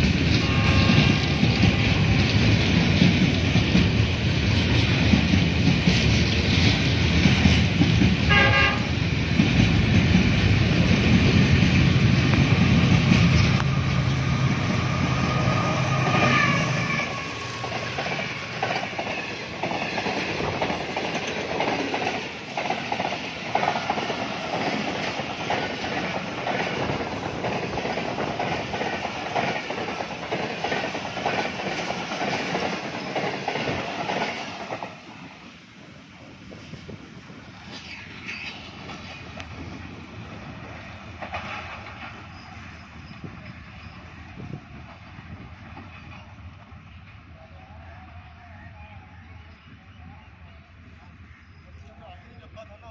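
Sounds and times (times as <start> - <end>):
train wheels clattering over rail joints: 0.0 - 15.2, 17.4 - 35.3, 37.6 - 46.7
locomotive engine rumble: 0.0 - 19.6
locomotive horn note: 0.3 - 2.4, 8.3 - 9.0, 13.5 - 17.6.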